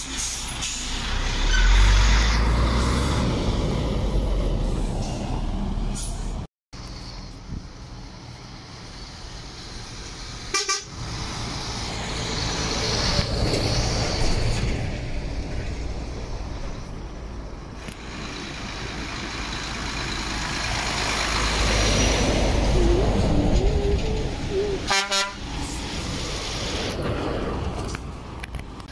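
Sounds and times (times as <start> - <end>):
truck engine running: 6.8 - 27.7
truck horn toot: 10.5 - 11.0, 24.9 - 25.4.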